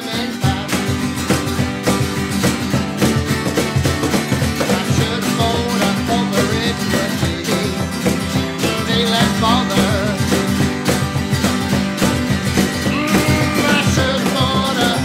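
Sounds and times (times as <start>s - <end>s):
cajon beat: 0.0s - 15.0s
strummed acoustic guitars: 0.0s - 15.0s
guitar melody: 12.7s - 14.4s.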